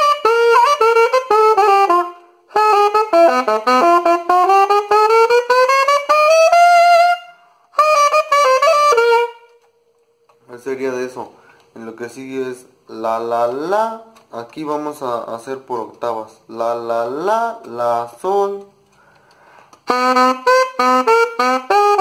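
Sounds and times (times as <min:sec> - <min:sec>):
alto saxophone playing: 0:00.0 - 0:09.8, 0:19.8 - 0:22.0.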